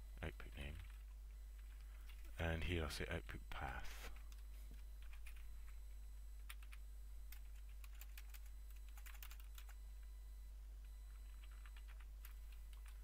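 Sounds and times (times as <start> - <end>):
low electrical hum: 0.0 - 13.0
typing on computer keyboard: 0.8 - 2.3, 5.0 - 5.8, 6.4 - 9.8, 11.1 - 13.0.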